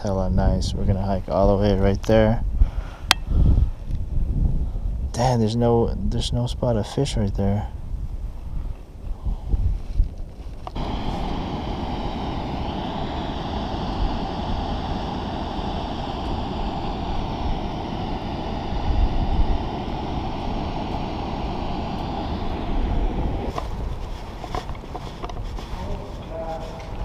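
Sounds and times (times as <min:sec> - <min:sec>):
wind buffeting microphone: 0:00.0 - 0:27.0
rushing water roar: 0:10.8 - 0:23.6.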